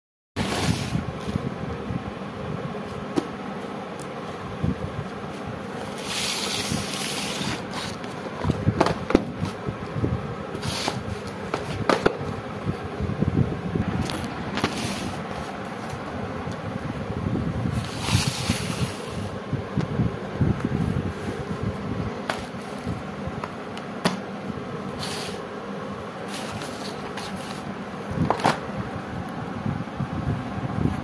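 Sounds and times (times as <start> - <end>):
cardboard boxes rustling and scraping: 0.4 - 1.6, 5.1 - 12.3, 14.0 - 16.2, 17.6 - 19.4, 20.7 - 23.1, 26.2 - 28.6
steady background hum: 0.4 - 31.0.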